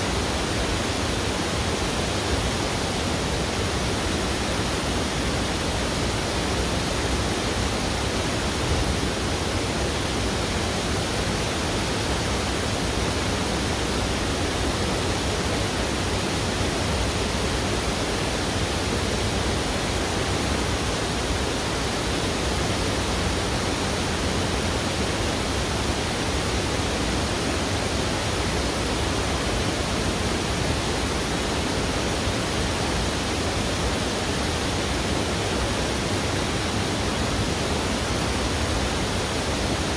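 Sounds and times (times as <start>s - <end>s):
fast-flowing river water: 0.0s - 39.9s.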